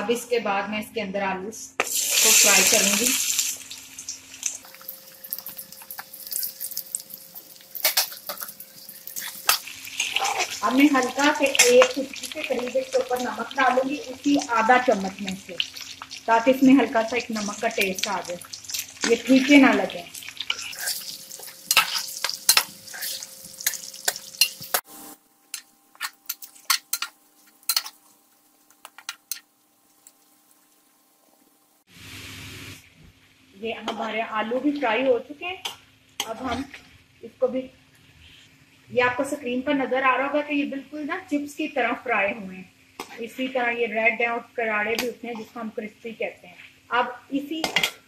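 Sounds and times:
potatoes sizzling in hot oil: 0:01.8 - 0:32.9
crackles and pops: 0:03.6 - 0:16.3, 0:25.5 - 0:30.9
spoon scraping metal pan: 0:05.2 - 0:12.7, 0:20.4 - 0:24.8, 0:25.5 - 0:28.0.

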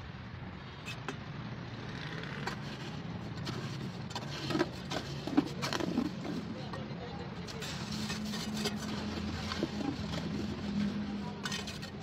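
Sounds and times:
hands scraping wet concrete: 0:07.5 - 0:12.0.

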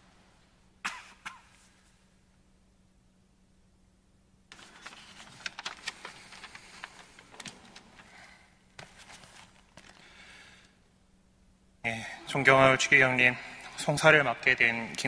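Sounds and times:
paper rustling and crinkling: 0:04.5 - 0:10.2.

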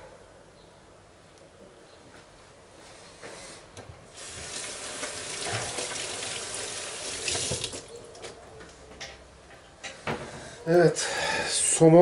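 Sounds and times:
tap running into sink: 0:04.3 - 0:07.9.

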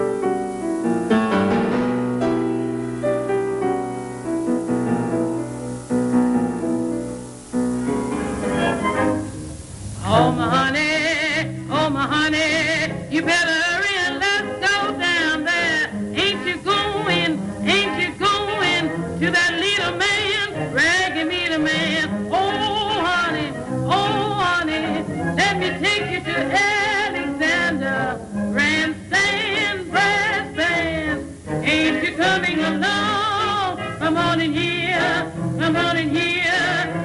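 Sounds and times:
musical accompaniment: 0:00.0 - 0:37.0
person singing with vibrato: 0:07.8 - 0:37.0.

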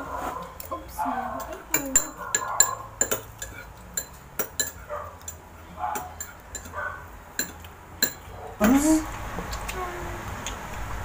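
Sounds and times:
cutlery clinking against plates: 0:01.4 - 0:08.4.

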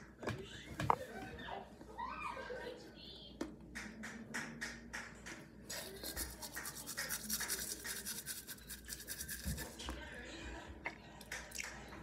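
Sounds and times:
toothbrush scrubbing teeth: 0:05.7 - 0:09.9.

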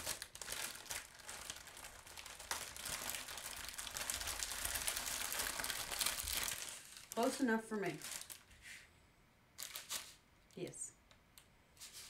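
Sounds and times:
plastic bags crinkling: 0:00.0 - 0:08.5, 0:09.6 - 0:10.2.

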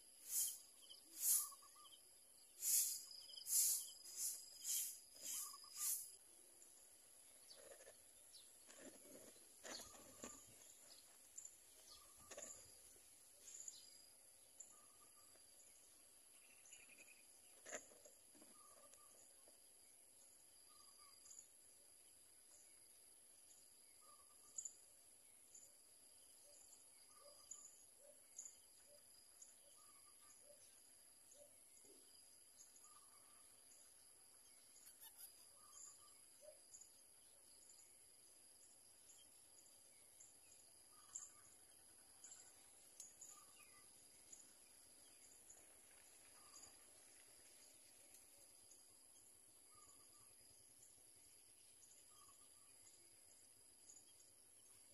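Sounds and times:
faint short high chirps: 0:02.6 - 0:06.2, 0:34.8 - 0:36.0.

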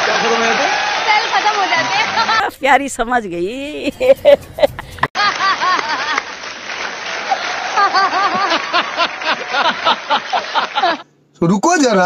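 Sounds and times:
applause: 0:00.0 - 0:02.2, 0:05.2 - 0:11.0
audience laughing: 0:03.8 - 0:11.0.

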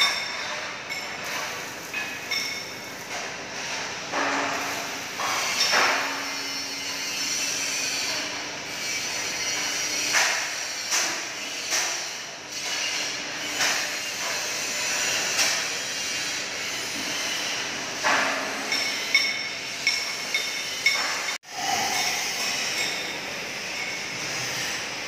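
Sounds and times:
metal parts and tools clinking: 0:00.0 - 0:06.8, 0:17.1 - 0:24.8.

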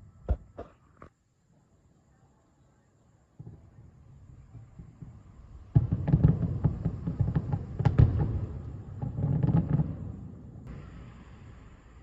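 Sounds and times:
distant fireworks booms and cracks: 0:03.3 - 0:12.0.

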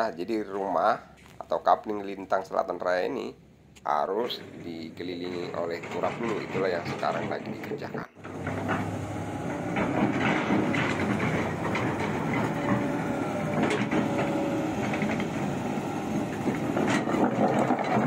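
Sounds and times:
excavator diesel engine running: 0:04.1 - 0:18.0.

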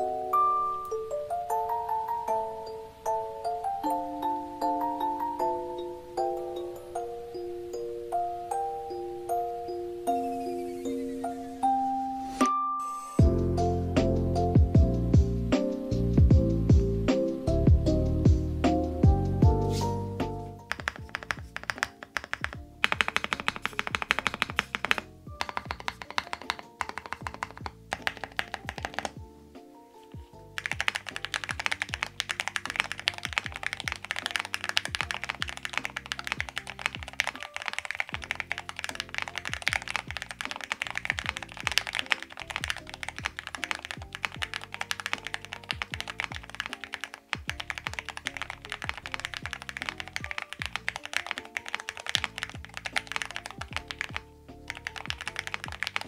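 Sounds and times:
background music: 0:00.0 - 0:56.0
mechanical keyboard typing: 0:20.6 - 0:29.2, 0:30.6 - 0:56.0.

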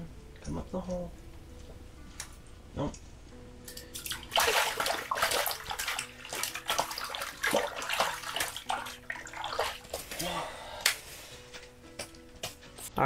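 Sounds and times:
water splashing and sloshing: 0:03.7 - 0:11.2.

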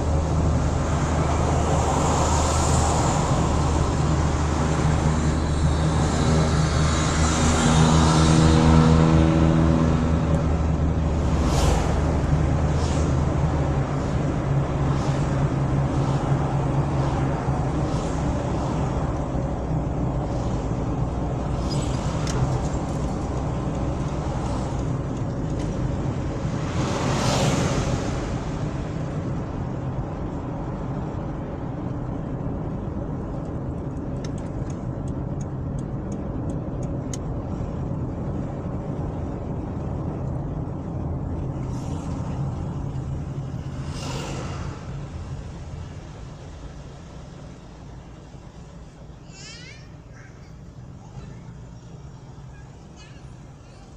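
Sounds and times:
car cabin road rumble: 0:00.0 - 0:53.9
vehicles passing: 0:00.0 - 0:53.9
light ticks: 0:33.3 - 0:37.4.

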